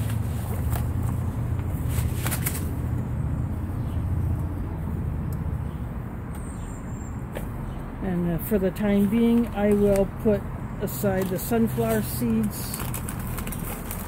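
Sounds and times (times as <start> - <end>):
foil pouches crinkling: 10.9 - 14.0.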